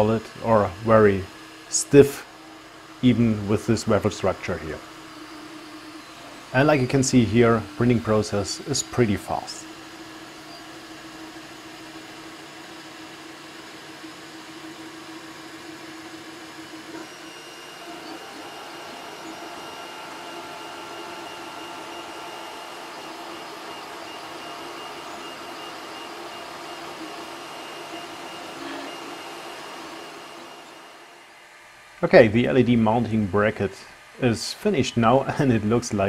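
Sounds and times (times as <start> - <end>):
stepper motors whining: 0.0 - 31.3.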